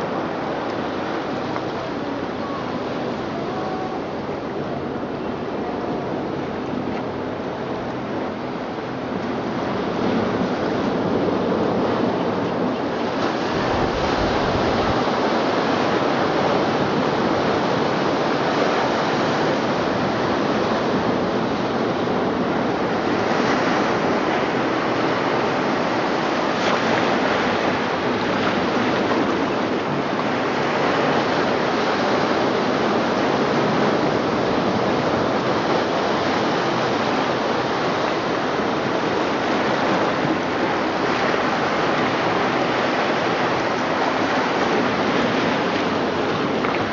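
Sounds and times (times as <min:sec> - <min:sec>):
ocean waves washing: 0:00.0 - 0:46.9.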